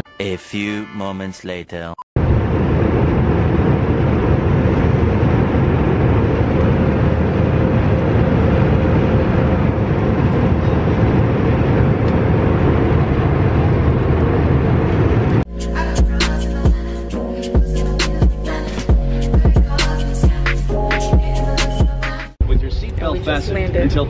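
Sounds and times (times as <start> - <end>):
airliner engine and airflow rush: 2.2 - 15.5, 22.4 - 24.0.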